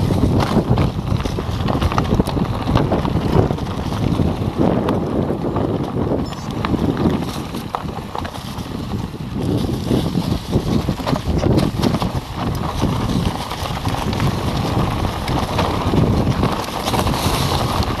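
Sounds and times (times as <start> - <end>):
bike rattling: 0.0 - 18.0
tyres crunching over stones: 0.0 - 18.0
wind buffeting microphone: 0.0 - 18.0.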